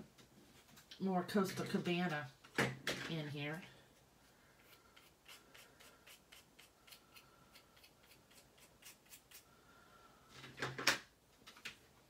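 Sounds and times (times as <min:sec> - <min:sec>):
pick tool scraping pastel stick: 0:04.6 - 0:09.5.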